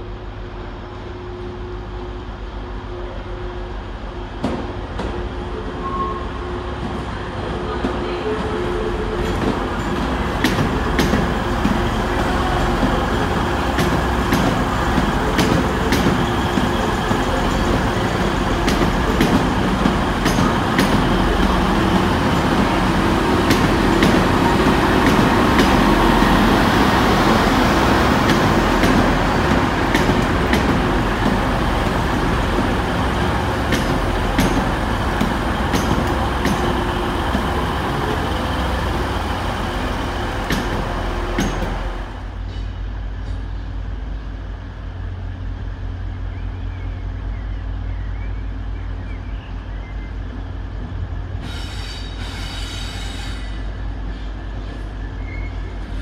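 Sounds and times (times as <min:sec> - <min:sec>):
diesel train engines rumbling: 0:00.0 - 0:56.0
wheels clicking over rail joints: 0:28.0 - 0:41.8.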